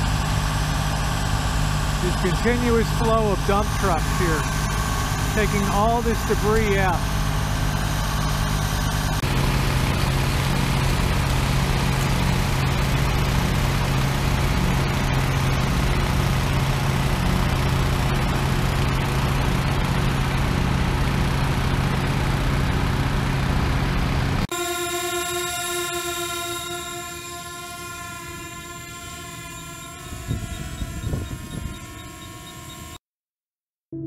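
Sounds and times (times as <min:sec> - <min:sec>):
large vehicle engine idling: 0:00.0 - 0:24.4.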